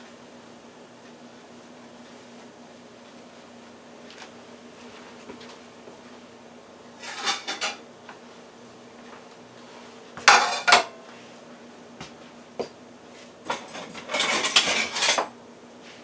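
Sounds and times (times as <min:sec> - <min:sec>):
low steady hum: 0:00.0 - 0:16.0
dishes and utensils rattling: 0:07.0 - 0:07.8, 0:10.3 - 0:10.9, 0:13.5 - 0:15.3
plate clattering down: 0:07.0 - 0:07.8, 0:10.3 - 0:10.9.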